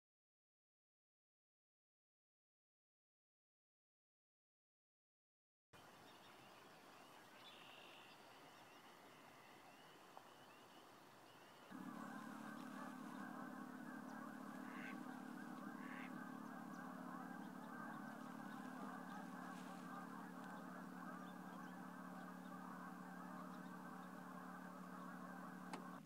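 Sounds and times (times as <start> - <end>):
distant bird chirps: 5.8 - 26.0
waterfowl chorus calling: 7.0 - 26.0.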